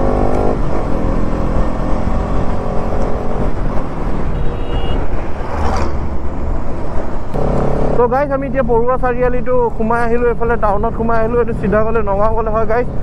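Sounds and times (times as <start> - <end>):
truck passing: 0.0 - 9.0
motorcycle riding: 0.0 - 13.0.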